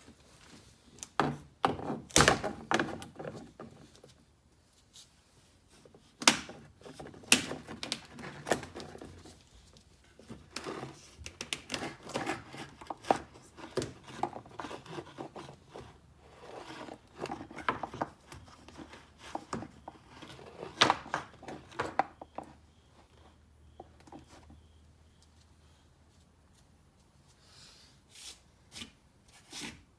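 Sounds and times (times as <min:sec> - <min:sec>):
hand tools clicking and scraping: 0:10.2 - 0:22.6.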